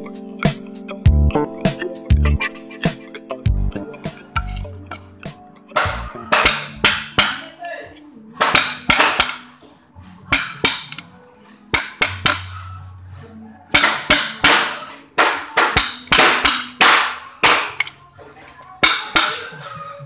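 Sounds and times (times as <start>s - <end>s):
mallet striking chisel: 5.8s - 7.5s, 8.4s - 9.5s, 10.3s - 11.0s, 11.7s - 12.6s, 13.8s - 18.0s, 18.8s - 19.5s.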